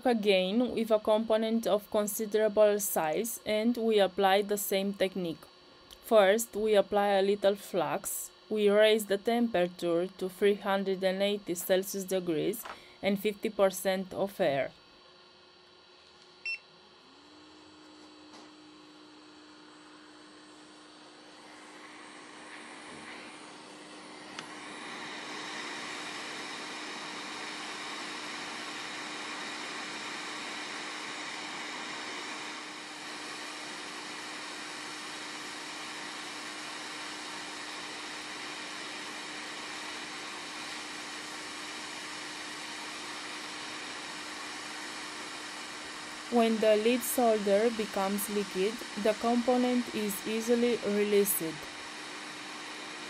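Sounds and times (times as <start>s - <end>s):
air pump humming: 16.1s - 53.0s
hiss of air: 21.4s - 46.3s.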